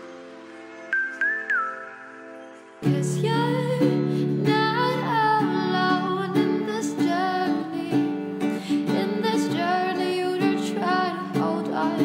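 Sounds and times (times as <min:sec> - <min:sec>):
person singing: 0:02.8 - 0:12.0.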